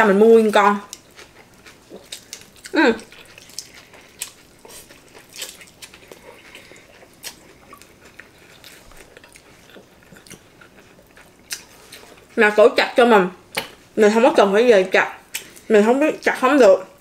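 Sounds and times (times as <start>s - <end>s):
person chewing food: 0.5s - 12.4s.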